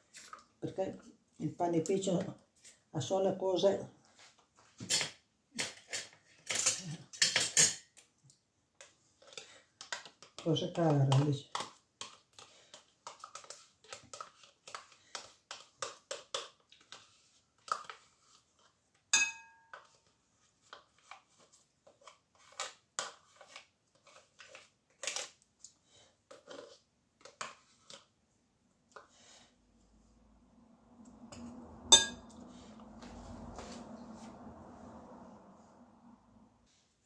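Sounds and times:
clink against glass bowl: 0:19.2 - 0:19.7, 0:31.9 - 0:32.2.

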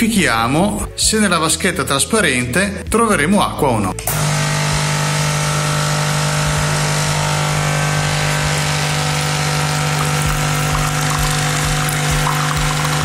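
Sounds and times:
water pump buzzing: 0:04.1 - 0:13.0.

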